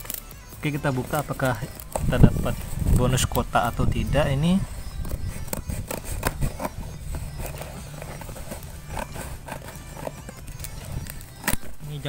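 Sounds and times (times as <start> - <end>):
scissors snipping plastic: 5.0 - 11.8.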